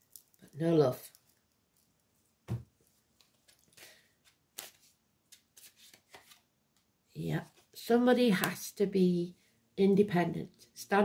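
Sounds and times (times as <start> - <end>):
cards clicking and rustling: 3.2 - 6.5.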